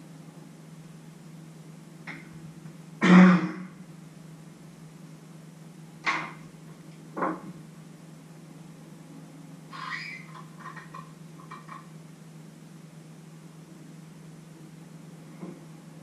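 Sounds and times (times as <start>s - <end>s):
steady low hum: 0.0s - 16.0s
man clearing his throat: 3.0s - 3.7s.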